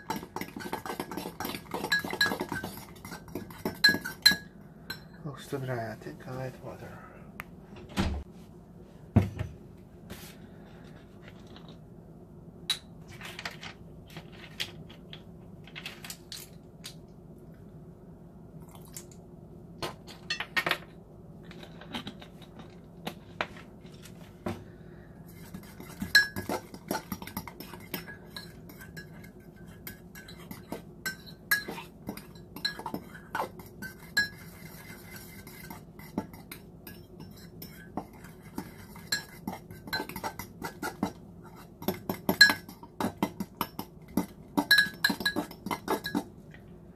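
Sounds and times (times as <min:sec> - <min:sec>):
fork clinking against ceramic mug: 0:00.0 - 0:05.1, 0:25.8 - 0:34.8, 0:35.5 - 0:40.9, 0:41.9 - 0:46.3
steady low hum: 0:00.0 - 0:46.9.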